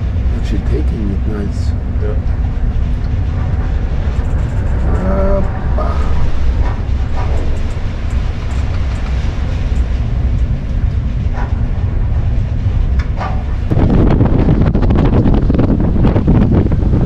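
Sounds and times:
storm wind buffeting microphone: 0.0s - 17.0s.

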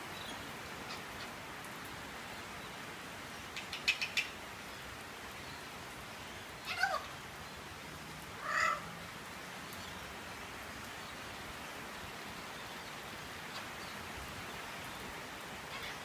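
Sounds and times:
rain hiss: 0.0s - 16.0s
parrot call: 6.6s - 7.1s, 8.4s - 8.9s, 15.7s - 16.0s.

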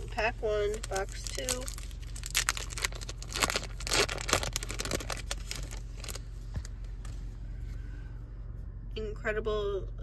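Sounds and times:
foil wrapper crinkling: 0.7s - 6.3s.

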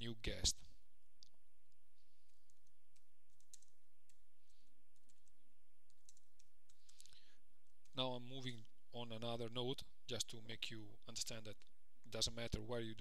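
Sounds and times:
typing on computer keyboard: 2.2s - 7.0s.

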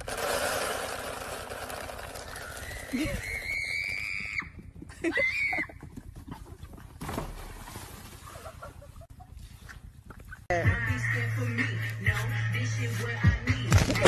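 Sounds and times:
dry feed pouring into bucket: 0.0s - 3.1s.

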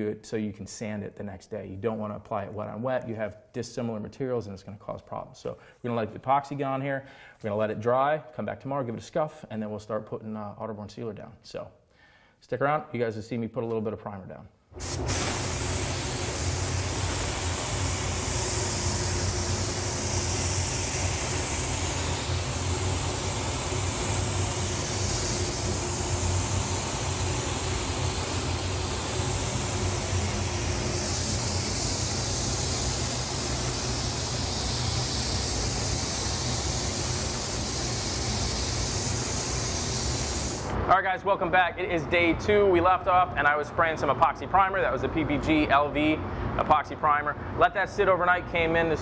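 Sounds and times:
spray gun hissing: 14.8s - 40.8s
steady low hum: 14.8s - 40.9s.

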